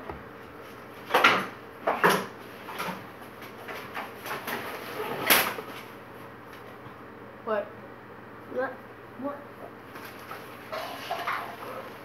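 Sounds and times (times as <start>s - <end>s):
rustling and scraping on counter: 9.9s - 12.0s.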